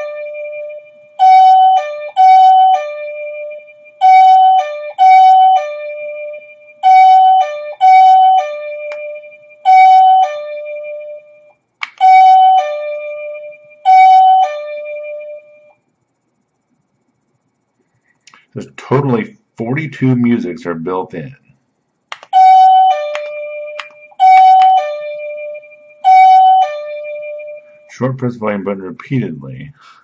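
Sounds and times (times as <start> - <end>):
doorbell two-tone chime: 12.1 - 15.7.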